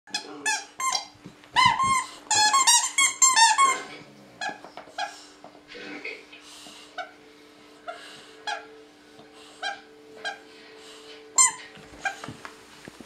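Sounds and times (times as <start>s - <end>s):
dog toy squeaking: 0.1s - 5.1s.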